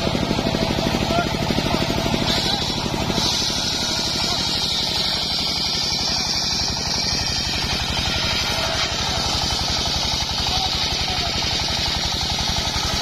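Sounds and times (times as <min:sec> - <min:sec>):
saw bench engine running: 0:00.0 - 0:13.0
saw blade ripping log: 0:02.2 - 0:10.0.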